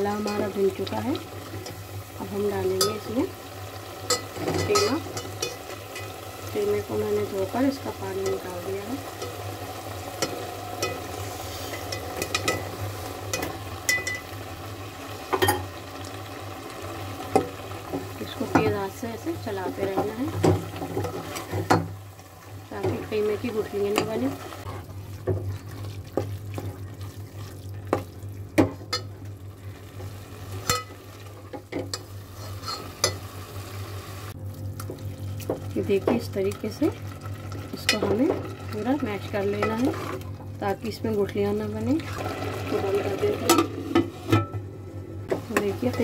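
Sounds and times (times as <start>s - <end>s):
paste sizzling in hot oil: 0.0s - 19.9s
faint sizzle: 0.0s - 46.0s
low steady hum: 0.0s - 46.0s
metal ladle clinking on pot: 4.0s - 6.2s
spoon scraping a metal pot: 32.3s - 33.2s.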